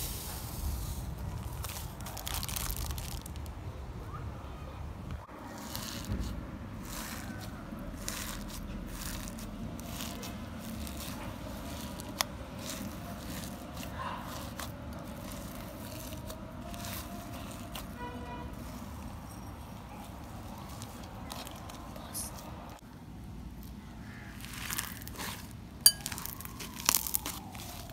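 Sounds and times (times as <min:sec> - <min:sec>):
slime being squished by hand: 0:05.5 - 0:18.9, 0:24.3 - 0:27.9.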